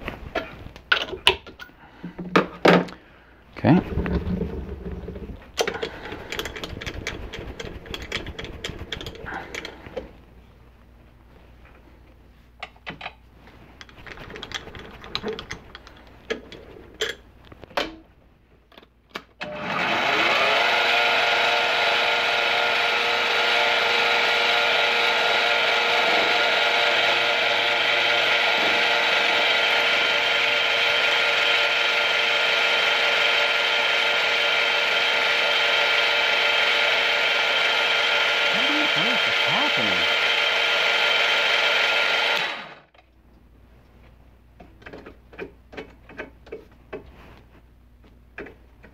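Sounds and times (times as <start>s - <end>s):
spindle motor whining: 36.6s - 42.8s.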